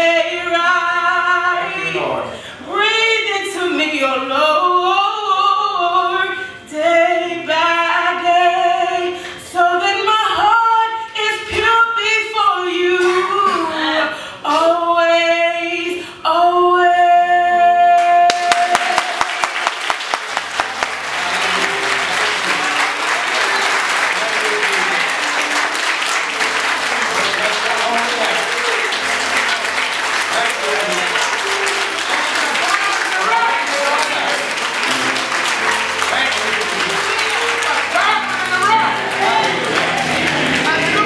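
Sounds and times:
woman singing gospel song: 0.0s - 19.8s
congregation applauding: 1.4s - 2.8s, 17.9s - 41.0s.

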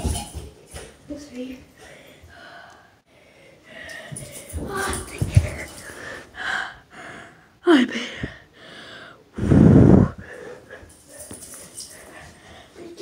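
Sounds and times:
loud breath into microphone: 8.1s - 10.7s.

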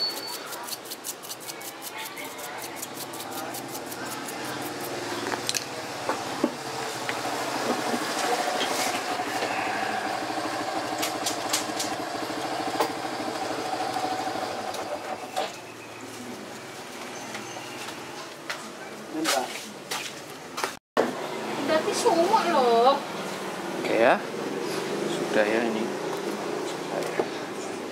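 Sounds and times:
engine running: 3.5s - 15.5s.

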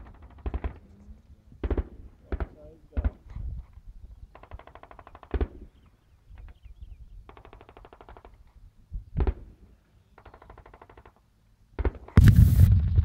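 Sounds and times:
distant automatic gunfire: 0.0s - 0.8s, 1.6s - 3.2s, 4.4s - 5.7s.

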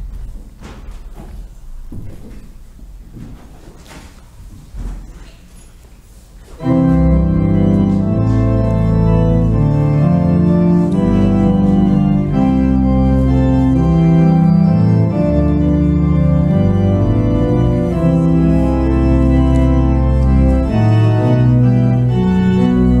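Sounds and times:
organ music: 6.6s - 23.0s.

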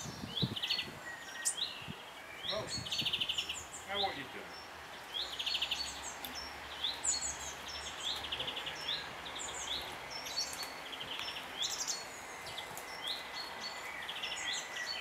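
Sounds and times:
bird trills: 0.0s - 1.8s
young birds calling: 0.0s - 15.0s.

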